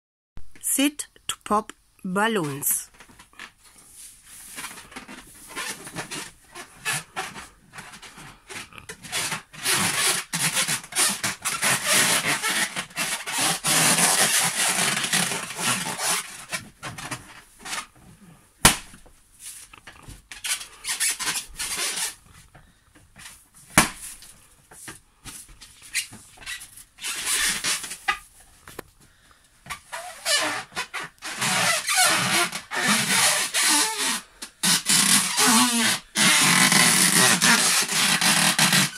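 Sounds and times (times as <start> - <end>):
balloons squeaking and rubbing: 2.4 - 22.6, 23.2 - 28.4, 29.7 - 38.9
balloon popping: 18.6 - 19.0, 23.8 - 24.2, 29.9 - 38.9.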